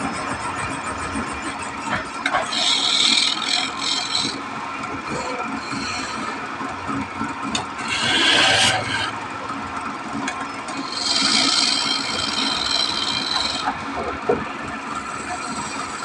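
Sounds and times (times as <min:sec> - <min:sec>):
chisel scraping spinning wood: 0:00.0 - 0:09.3, 0:10.6 - 0:16.0
wood lathe running: 0:00.0 - 0:16.0.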